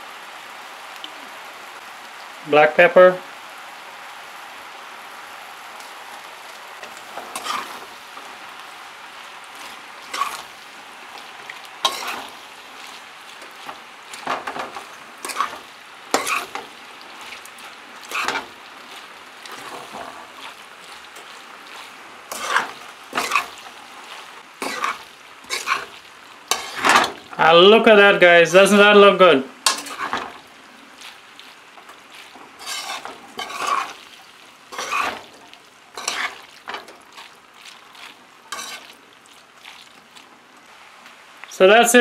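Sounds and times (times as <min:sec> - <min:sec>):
food sizzling: 0:00.0 - 0:42.0
metal spoon scraping frying pan: 0:06.8 - 0:07.9, 0:09.6 - 0:10.5, 0:11.8 - 0:18.6, 0:19.4 - 0:23.7, 0:24.6 - 0:27.3, 0:29.6 - 0:30.4, 0:32.3 - 0:34.0, 0:34.7 - 0:35.4, 0:36.0 - 0:37.0, 0:38.5 - 0:39.0.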